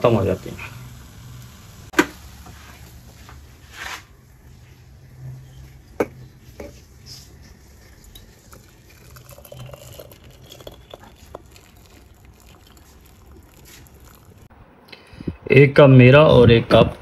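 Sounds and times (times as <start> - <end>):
tea trickling through strainer: 5.7 - 14.5.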